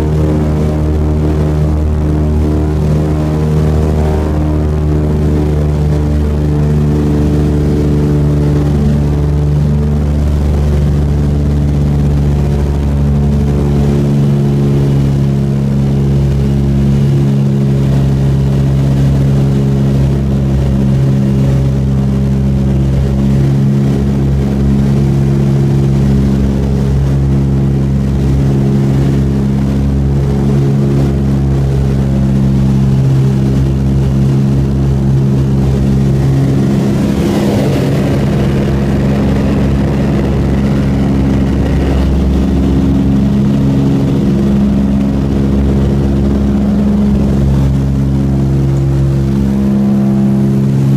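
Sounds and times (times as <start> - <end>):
piston aircraft engines droning: 0.0 - 50.9
rushing air: 29.6 - 50.9.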